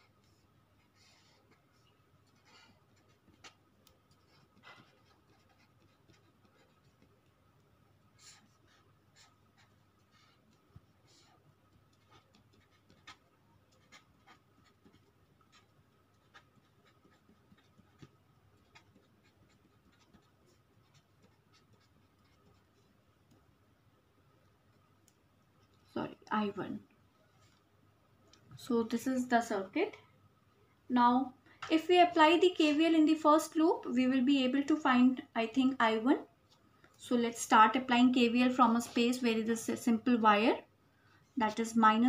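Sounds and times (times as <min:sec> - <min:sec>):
marker pen writing on paper: 0:00.0 - 0:23.5.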